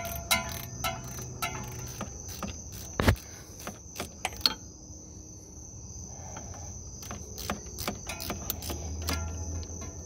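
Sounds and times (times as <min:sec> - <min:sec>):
ratchet wrench clicking: 0:00.0 - 0:04.6, 0:07.0 - 0:10.0.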